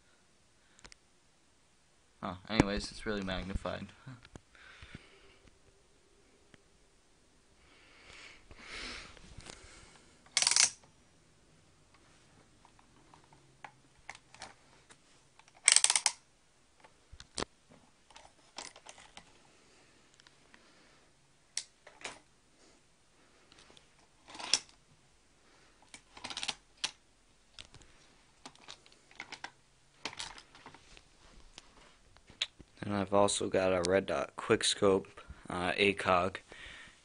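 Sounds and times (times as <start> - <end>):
plastic and metal parts clicking: 10.3 - 10.9, 12.6 - 14.6, 15.4 - 16.2, 25.8 - 27.0, 28.4 - 30.8.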